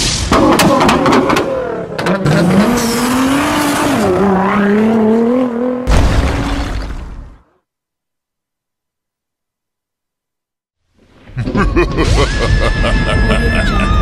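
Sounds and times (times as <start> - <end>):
car engine revving: 0.7 - 5.9.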